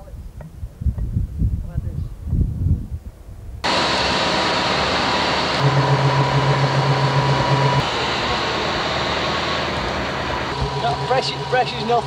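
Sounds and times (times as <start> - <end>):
low pulsing hum: 2.3 - 12.0
steady mechanical hiss: 3.6 - 12.0.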